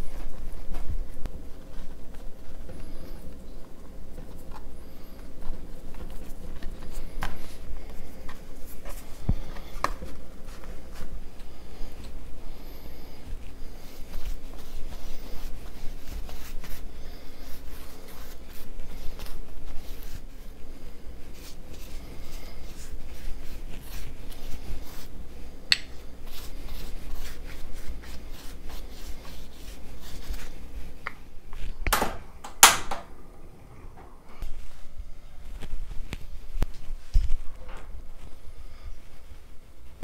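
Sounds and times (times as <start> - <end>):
pastry brush scratching: 0.0 - 31.8.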